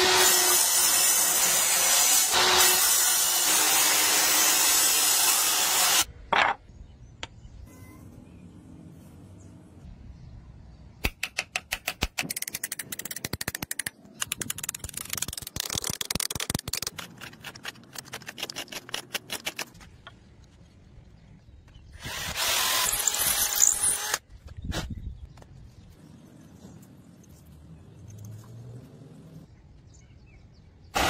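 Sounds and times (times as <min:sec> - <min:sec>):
power tool running: 0:22.0 - 0:24.2.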